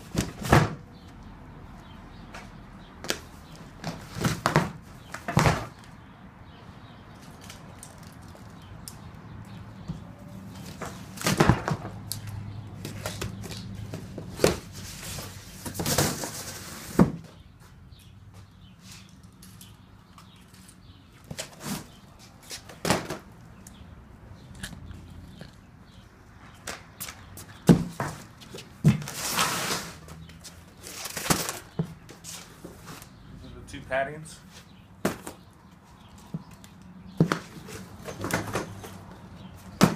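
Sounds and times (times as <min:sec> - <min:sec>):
cardboard boxes knocking and thudding: 0:00.0 - 0:00.8, 0:03.8 - 0:05.8, 0:10.7 - 0:12.0, 0:12.8 - 0:17.4, 0:22.7 - 0:23.2, 0:27.6 - 0:30.0, 0:35.0 - 0:35.4, 0:37.2 - 0:39.0, 0:39.7 - 0:39.9
cardboard scraping and rustling: 0:28.8 - 0:30.1.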